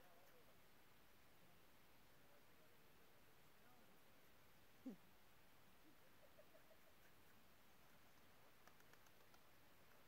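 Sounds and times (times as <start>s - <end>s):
faint clicks: 7.0s - 10.0s.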